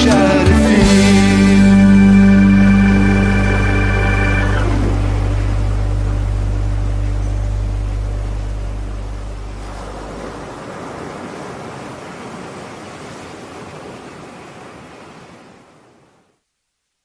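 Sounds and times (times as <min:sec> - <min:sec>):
low hum: 0:00.7 - 0:10.6
sea waves washing: 0:00.8 - 0:16.3.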